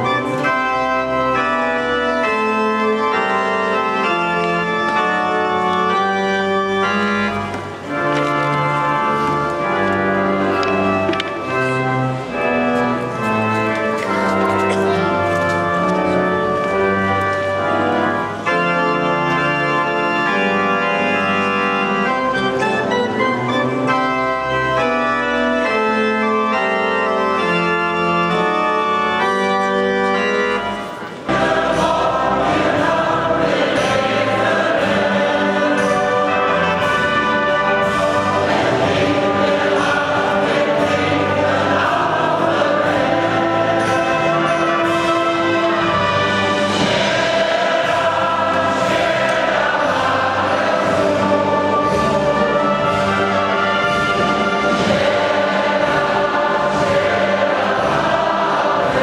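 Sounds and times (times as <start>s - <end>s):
brass instruments: 0.0s - 59.0s
pipe organ playing chords: 0.0s - 59.0s
crowd singing: 30.9s - 59.0s.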